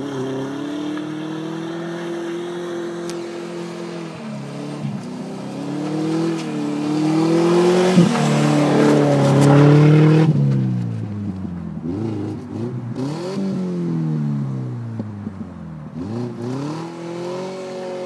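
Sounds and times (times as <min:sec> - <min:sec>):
snow spraying off tyres: 0:00.0 - 0:11.0
car engine revving hard: 0:00.0 - 0:18.0.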